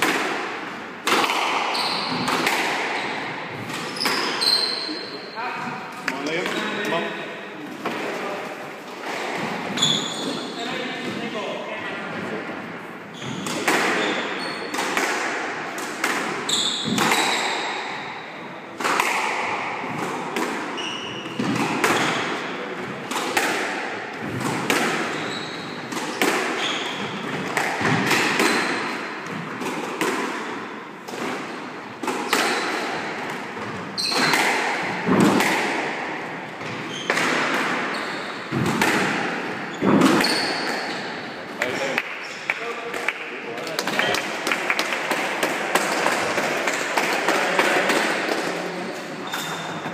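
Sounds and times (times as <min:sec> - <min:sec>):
squash ball cracks: 0:00.0 - 0:03.0, 0:34.1 - 0:36.1
shoe squeaks on wooden floor: 0:01.7 - 0:02.3, 0:03.9 - 0:05.8, 0:09.7 - 0:11.0, 0:13.1 - 0:14.7, 0:16.4 - 0:17.6, 0:20.8 - 0:22.3, 0:25.1 - 0:25.9, 0:26.6 - 0:27.3, 0:28.4 - 0:28.9, 0:33.9 - 0:34.4, 0:36.6 - 0:37.2, 0:37.8 - 0:38.5, 0:39.6 - 0:41.2, 0:48.8 - 0:49.9.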